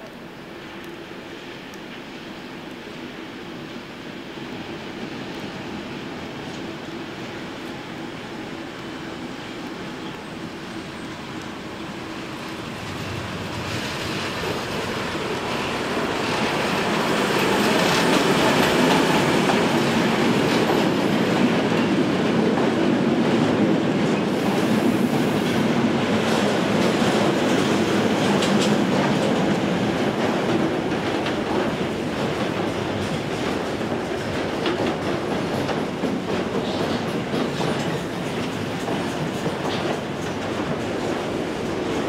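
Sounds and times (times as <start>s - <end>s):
freight train passing: 0.0s - 42.0s
wheels clacking over rail joints: 12.3s - 23.4s, 26.2s - 42.0s.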